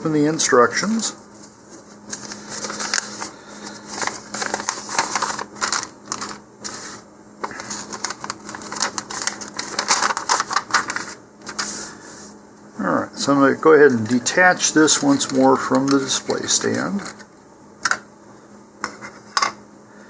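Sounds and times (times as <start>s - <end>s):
paper rustling and crackling: 1.3s - 12.0s, 14.7s - 17.3s.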